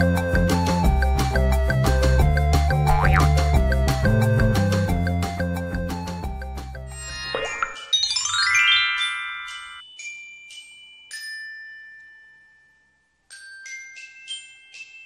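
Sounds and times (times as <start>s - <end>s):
chiming bell-like jingle: 6.9s - 15.0s.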